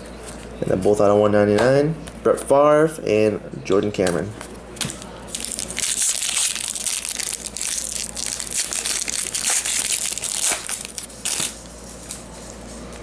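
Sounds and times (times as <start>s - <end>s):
foil wrapper crinkling: 5.3s - 12.8s.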